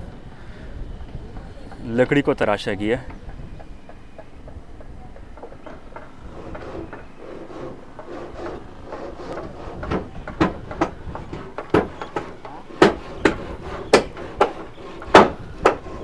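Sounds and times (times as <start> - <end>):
sharp knocks on wood: 9.8 - 16.0.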